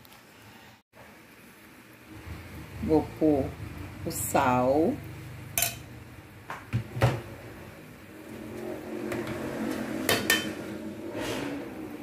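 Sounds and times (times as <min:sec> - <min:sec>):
food sizzling and scraping: 0:05.0 - 0:12.0
metal spoon clinking on pot: 0:05.6 - 0:05.8.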